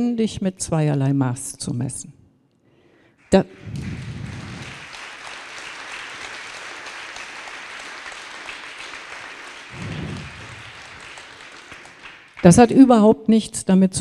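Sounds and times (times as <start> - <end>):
audience applauding: 3.3 - 12.9.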